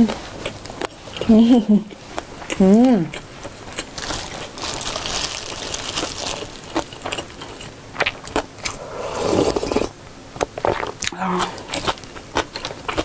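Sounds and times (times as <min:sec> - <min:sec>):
slurping broth: 0:08.3 - 0:10.0.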